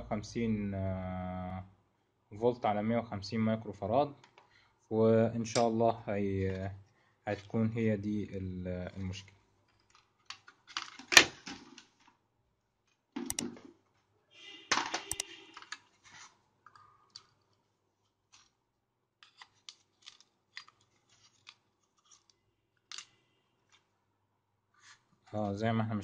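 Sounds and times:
sharp clicks: 15.1 - 15.3.

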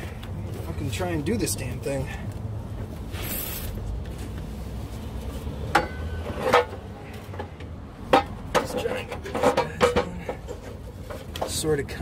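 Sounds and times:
short hiss: 3.1 - 3.8
metal muffler clinking: 5.7 - 12.0.

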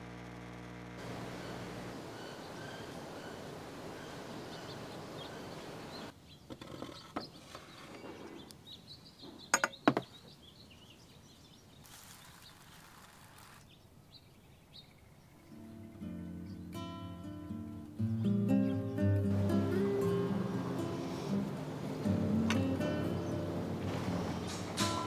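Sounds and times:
outdoor background noise: 0.0 - 25.0
faint bird chirps: 1.1 - 21.4.

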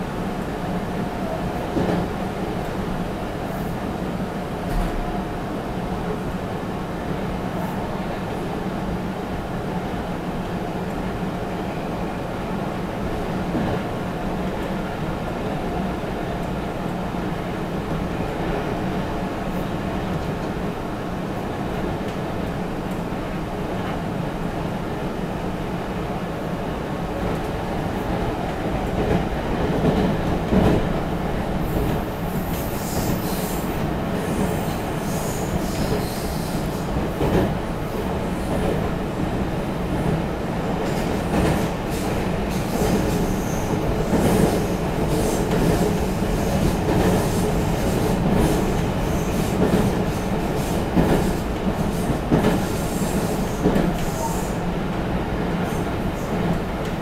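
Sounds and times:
train wheels rumbling on rail: 0.0 - 57.0
rail joint clicks and knocks: 1.7 - 2.2, 28.4 - 31.0, 35.5 - 39.0, 40.8 - 54.2, 55.5 - 57.0.

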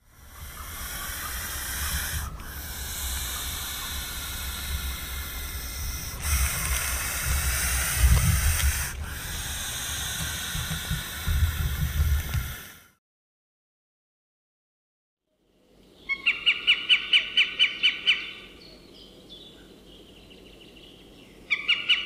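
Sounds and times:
snake hissing: 0.0 - 13.0.

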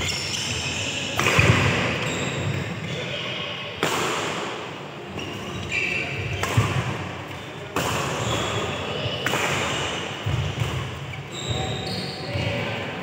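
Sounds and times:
players' voices: 0.2 - 13.0
racket hitting shuttlecock: 1.1 - 2.7, 3.8 - 4.7, 6.2 - 11.2.

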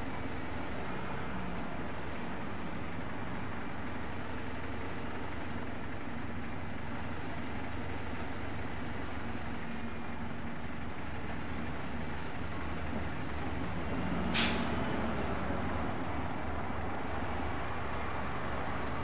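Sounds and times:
bus engine running: 0.0 - 19.0
air brake hiss: 14.3 - 14.8.

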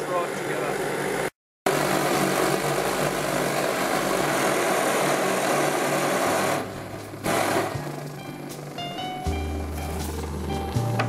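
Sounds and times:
blowtorch hissing: 0.1 - 8.7.

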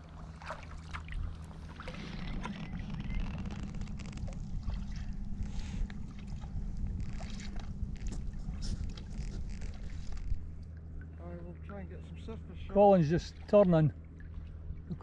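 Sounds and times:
paddle splashes and drips: 0.0 - 2.7, 13.0 - 15.0
steady low rumble: 0.0 - 15.0.

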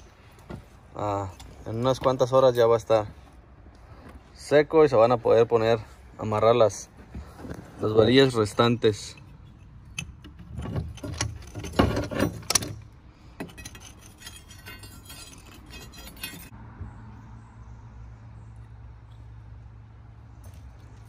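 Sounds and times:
scraping metallic rattle: 7.4 - 16.5
metal bar clinking: 13.4 - 16.5.

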